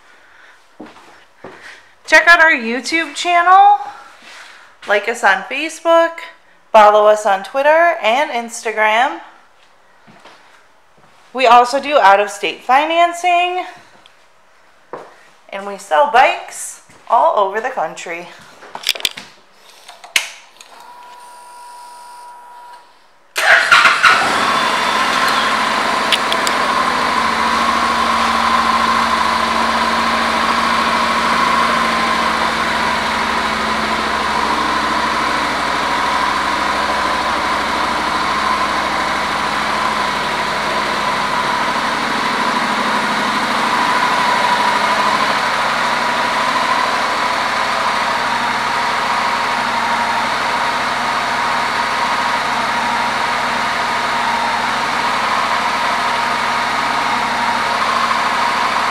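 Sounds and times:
click: 0:19.9 - 0:21.2
motorcycle engine starting and idling: 0:23.4 - 0:58.9.

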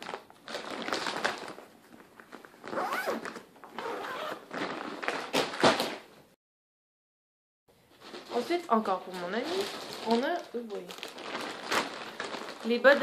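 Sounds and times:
plastic bag crinkling: 0:00.0 - 0:05.6, 0:07.9 - 0:13.0.

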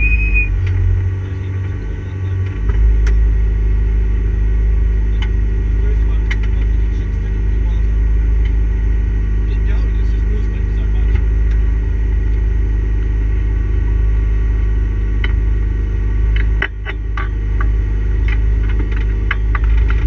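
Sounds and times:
car engine rumbling at low revs: 0:00.0 - 0:20.0
sharp clicks and knocks: 0:02.4 - 0:03.2, 0:06.2 - 0:06.8, 0:16.3 - 0:20.0.

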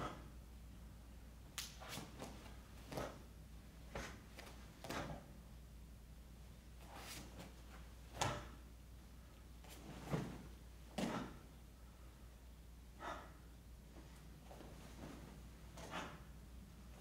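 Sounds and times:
low steady room hum: 0:00.0 - 0:17.0
bare feet thudding on foam mats: 0:09.7 - 0:11.4.

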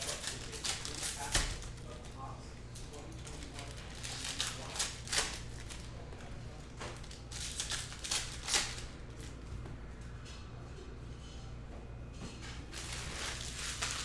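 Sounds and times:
foil wrapper crinkling: 0:00.0 - 0:02.2, 0:03.0 - 0:06.0, 0:07.0 - 0:08.9, 0:12.7 - 0:14.0.

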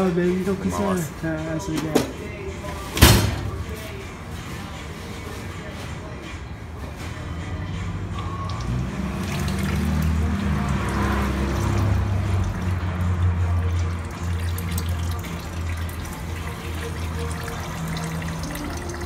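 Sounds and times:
music playing: 0:00.0 - 0:19.0
oil trickling and dribbling: 0:08.0 - 0:19.0.

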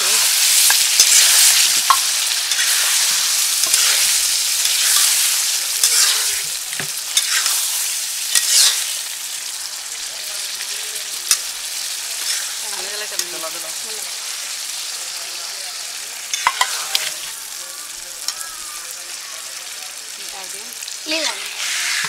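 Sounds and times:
metal spatula scraping pan: 0:00.0 - 0:08.9, 0:12.2 - 0:13.4, 0:21.1 - 0:22.0
curry sizzling in a pan: 0:00.0 - 0:22.0.

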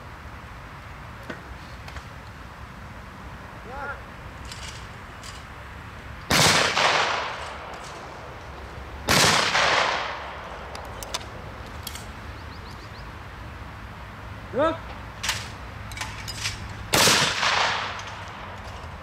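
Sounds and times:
gunshots with echo: 0:06.3 - 0:07.7, 0:09.1 - 0:10.5, 0:17.0 - 0:18.2.

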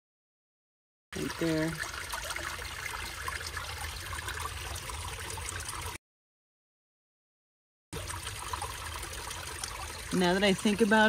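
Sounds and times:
creek water trickling over rocks: 0:01.2 - 0:06.0, 0:08.0 - 0:11.0.

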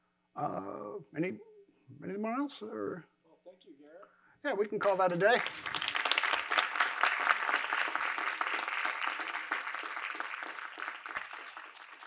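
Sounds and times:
small audience applauding: 0:04.8 - 0:12.0.

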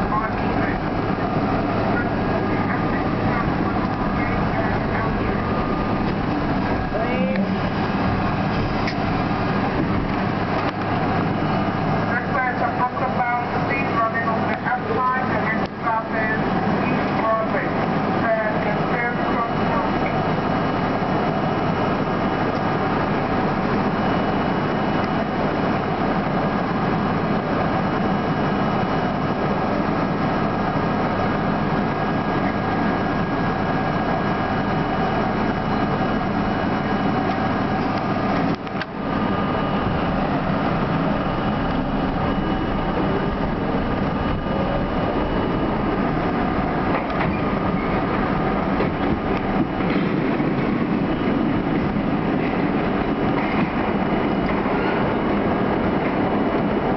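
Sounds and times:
subway car hum and rumble: 0:00.0 - 0:56.9.

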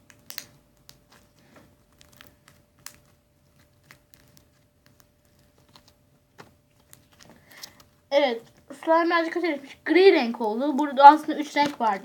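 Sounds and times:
sticky clicks of slime kneaded: 0:00.0 - 0:06.0.

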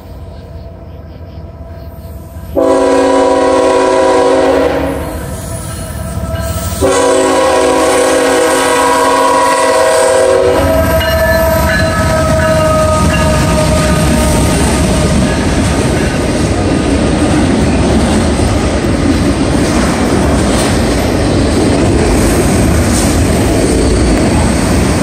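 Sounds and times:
locomotive engine and wheel rumble: 0:00.0 - 0:25.0
train air horn blasts: 0:02.6 - 0:05.6, 0:06.4 - 0:15.3.

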